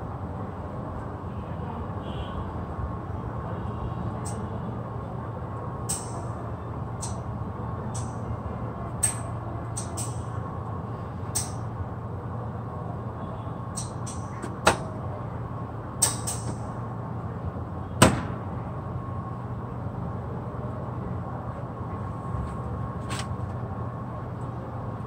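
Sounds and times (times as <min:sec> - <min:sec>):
sharp clicks and knocks: 0:16.0 - 0:16.7.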